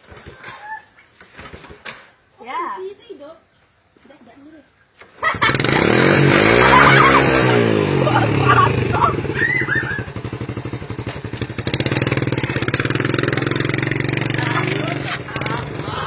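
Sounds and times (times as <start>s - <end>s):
small motorcycle engine running: 5.3s - 16.0s.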